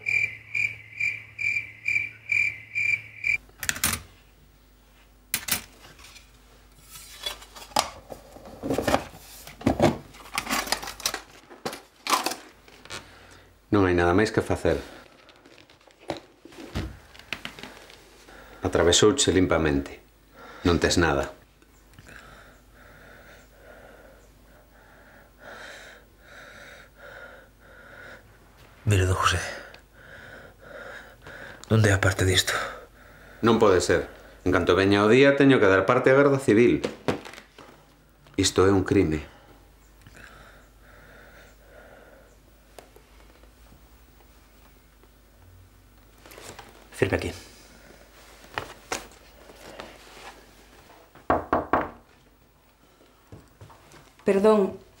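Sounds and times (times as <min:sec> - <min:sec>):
crickets chirping: 0:00.0 - 0:03.4.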